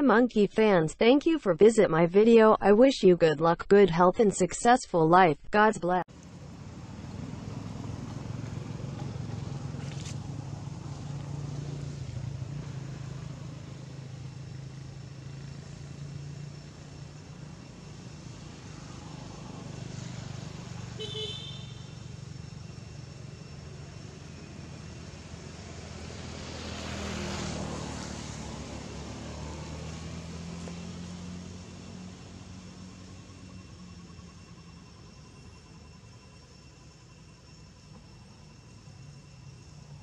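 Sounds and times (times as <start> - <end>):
traffic engine hum: 6.0 - 40.0
vehicle passing: 6.1 - 34.4
car horn toot: 21.0 - 22.0.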